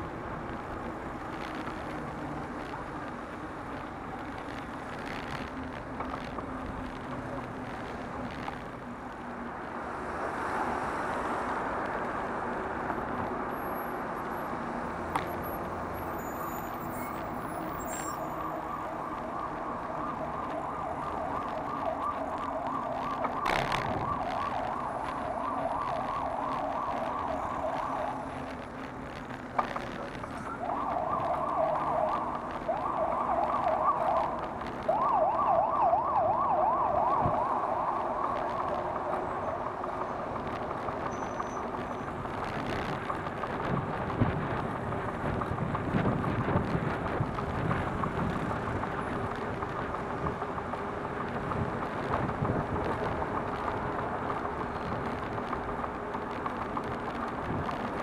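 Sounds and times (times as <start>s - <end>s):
city traffic noise: 0.0s - 58.0s
emergency siren yelping: 16.1s - 28.7s, 30.3s - 41.8s.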